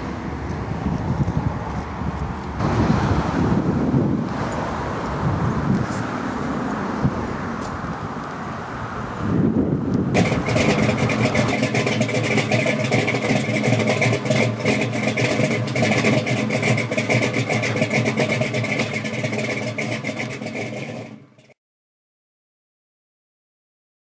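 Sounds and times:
car engine running: 0:09.3 - 0:21.6.

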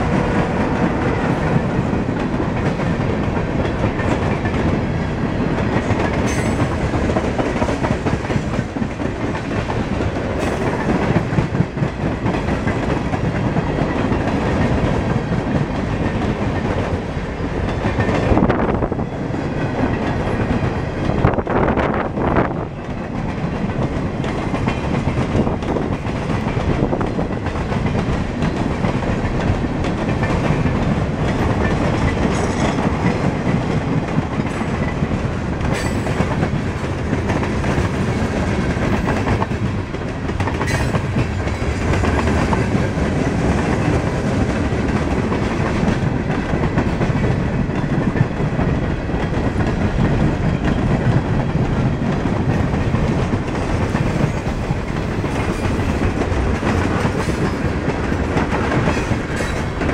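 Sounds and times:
steel train wheels on rails: 0:00.0 - 0:59.9.

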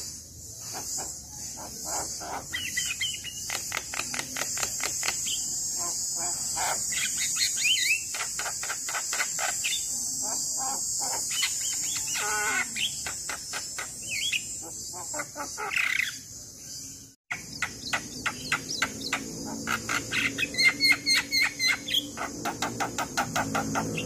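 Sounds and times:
high insect drone: 0:00.0 - 0:24.0
myna chattering and whistling: 0:00.6 - 0:16.2.

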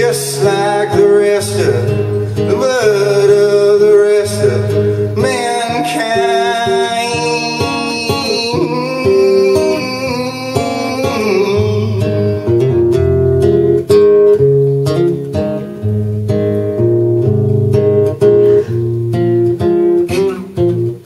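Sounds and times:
man singing: 0:00.0 - 0:13.0
strummed acoustic guitar: 0:00.0 - 0:21.0.

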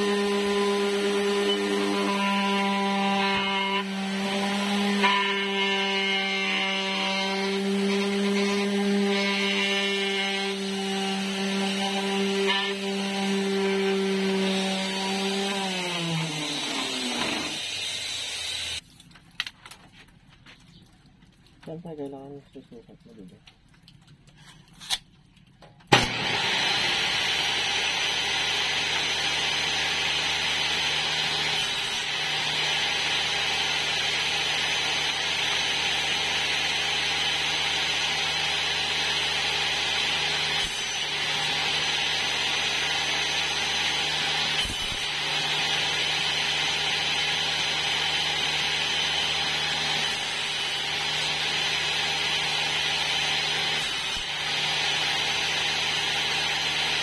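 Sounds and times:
table saw running: 0:00.0 - 0:18.8, 0:25.9 - 0:57.0
tape measure blade snapping back: 0:24.4 - 0:25.1.

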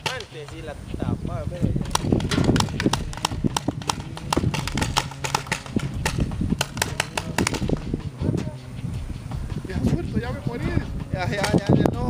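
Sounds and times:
low rumble: 0:00.9 - 0:12.0
paintball markers popping: 0:01.8 - 0:08.0.

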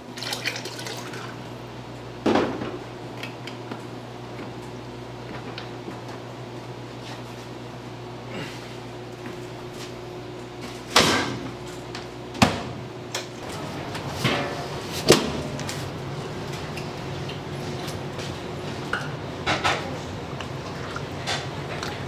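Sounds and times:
steady low hum: 0:01.1 - 0:22.0
metal pots clanking on steel: 0:14.2 - 0:15.6.

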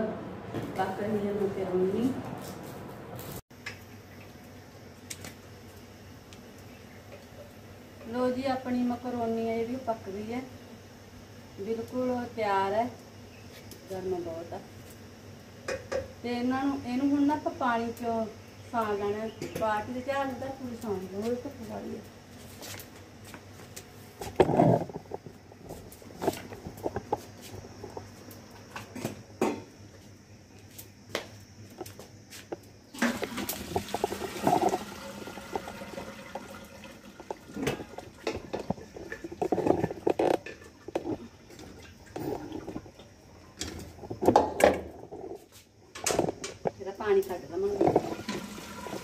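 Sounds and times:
hot water pouring and splashing: 0:32.9 - 0:43.2, 0:47.8 - 0:49.0
steel pots and lids clanking: 0:33.0 - 0:41.0.

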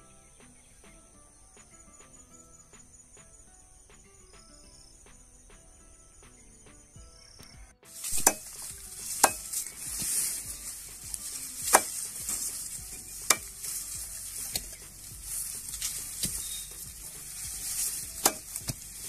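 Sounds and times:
dry stalks rustling: 0:07.9 - 0:19.0
sickle chopping grass canes: 0:07.9 - 0:19.0.

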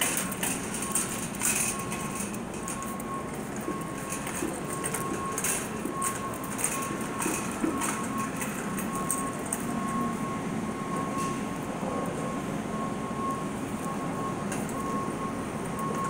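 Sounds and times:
shopping cart rattling on concrete: 0:00.0 - 0:09.7
electronic beep: 0:00.2 - 0:16.0.

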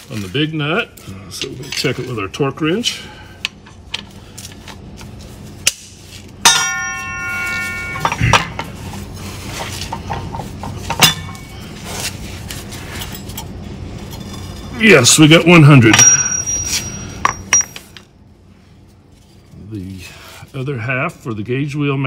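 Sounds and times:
ringing metal clang: 0:06.4 - 0:08.6, 0:10.9 - 0:11.5, 0:15.8 - 0:18.0.

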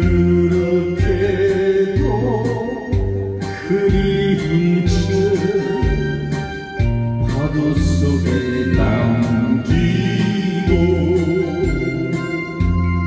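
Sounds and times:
held bass notes: 0:00.0 - 0:13.0
steady drum beat: 0:02.9 - 0:13.0.

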